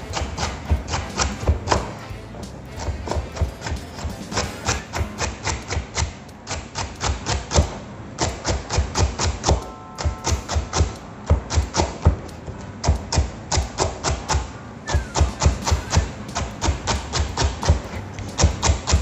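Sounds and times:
knife chopping on cutting board: 15.0s - 19.0s.

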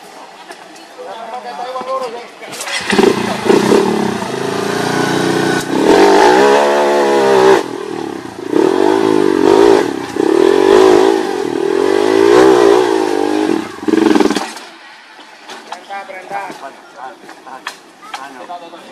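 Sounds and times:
motorcycle engine revving: 2.5s - 14.7s.

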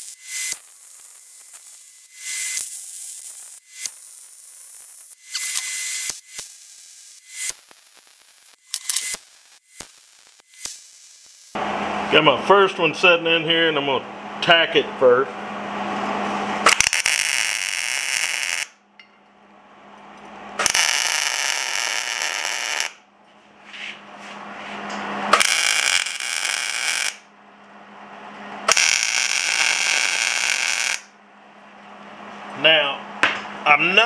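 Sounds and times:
welder arc bursts: 0.0s - 12.2s, 16.6s - 18.8s, 20.6s - 23.0s, 25.3s - 27.3s, 28.6s - 31.1s.

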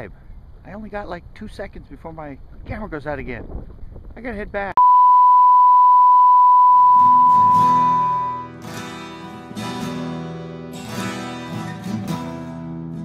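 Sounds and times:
electronic beep tone: 4.8s - 8.6s
strummed acoustic guitar: 7.3s - 13.0s.

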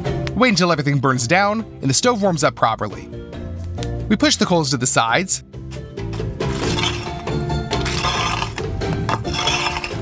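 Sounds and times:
background music: 0.0s - 10.0s
poker scraping coals: 6.0s - 10.0s.

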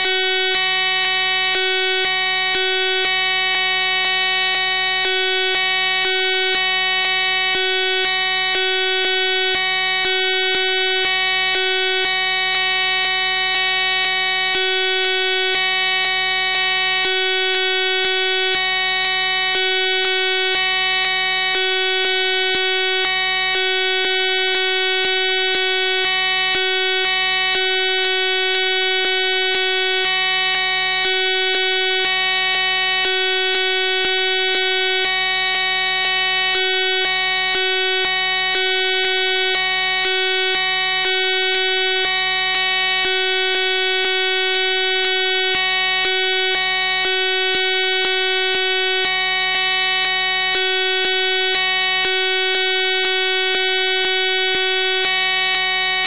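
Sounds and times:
steady electronic buzz: 0.0s - 52.1s.

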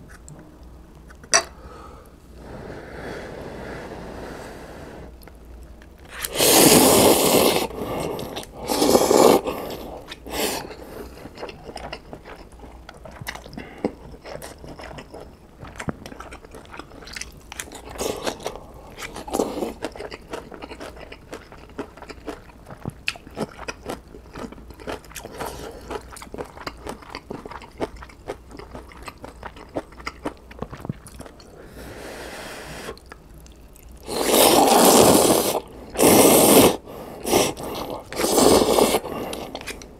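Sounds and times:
slurping noodles: 6.1s - 11.2s, 34.0s - 39.9s
wet chewing: 10.0s - 31.5s.

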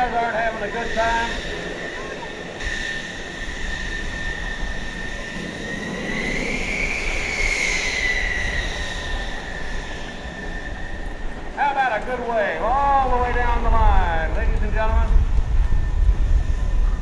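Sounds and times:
jet engines whining: 0.0s - 17.0s
low rumble: 12.6s - 17.0s.

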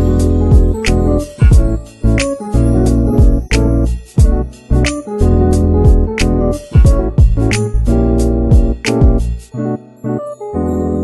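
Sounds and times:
instrumental music with beat: 0.0s - 11.0s.

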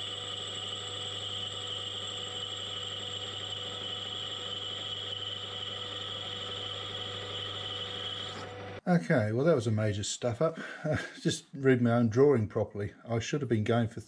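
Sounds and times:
high-pitched whine: 0.0s - 8.8s
metal lathe running: 0.0s - 8.8s.

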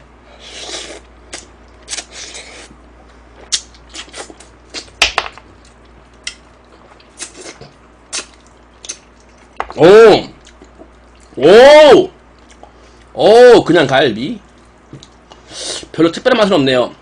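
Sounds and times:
wet mouth smacks: 7.2s - 9.5s.

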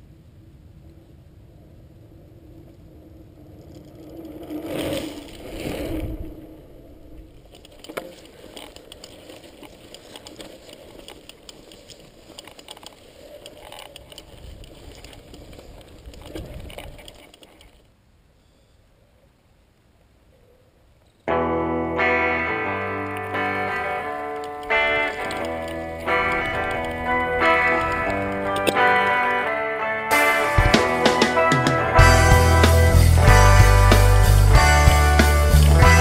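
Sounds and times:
bike tyres crunching on gravel: 3.7s - 17.7s, 23.3s - 29.7s
bike rattling and clicking: 7.4s - 17.8s, 23.1s - 29.4s.

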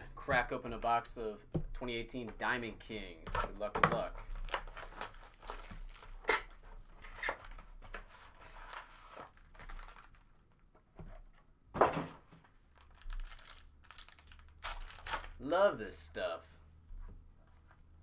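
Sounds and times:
shrink wrap tearing and crinkling: 4.3s - 6.6s, 8.5s - 10.3s, 12.7s - 15.4s.

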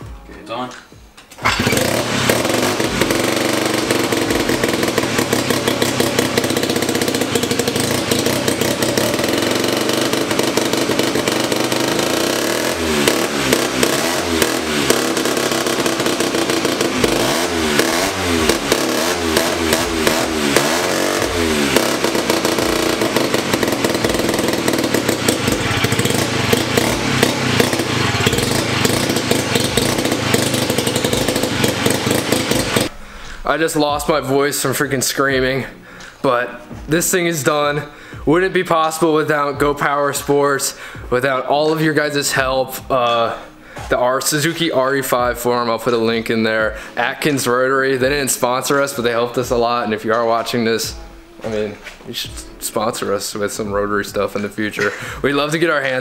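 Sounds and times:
motorcycle engine revving: 1.4s - 35.8s, 36.6s - 56.0s.

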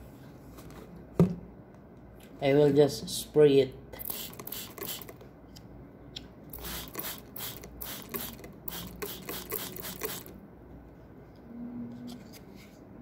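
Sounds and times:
spray can hissing bursts: 4.0s - 5.2s, 6.5s - 10.3s.

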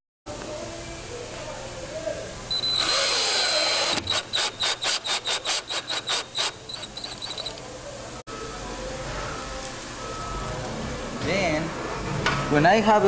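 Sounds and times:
cordless drill driving screws: 2.7s - 7.6s.

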